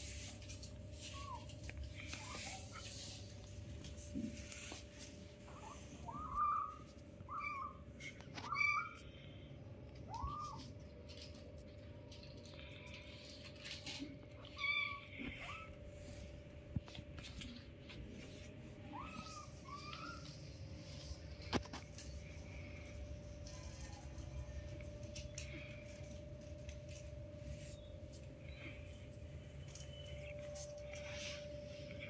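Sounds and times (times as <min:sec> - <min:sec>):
faint steady hum: 0:00.0 - 0:32.0
kittens mewing: 0:12.4 - 0:17.7, 0:18.4 - 0:21.7.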